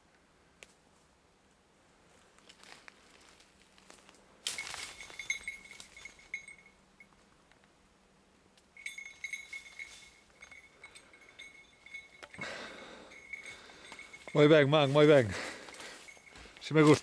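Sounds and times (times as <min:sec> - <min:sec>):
dog bell jingling: 0:04.5 - 0:07.1, 0:08.8 - 0:17.0.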